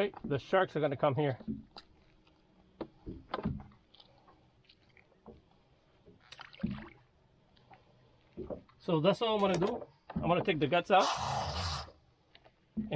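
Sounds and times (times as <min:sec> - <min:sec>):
soft handling knocks and thumps: 0:00.0 - 0:07.0, 0:07.6 - 0:08.9, 0:09.5 - 0:10.8.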